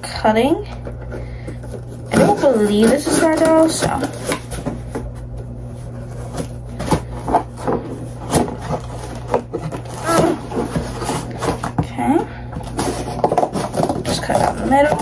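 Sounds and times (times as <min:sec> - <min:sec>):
scissors cutting cardboard: 0:01.8 - 0:04.8, 0:06.1 - 0:15.0.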